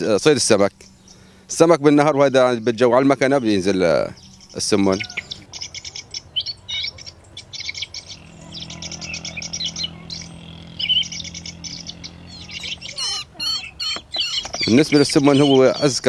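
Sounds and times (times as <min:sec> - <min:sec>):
low steady hum: 0:00.0 - 0:15.3
bird chirping and squawking: 0:04.2 - 0:16.0.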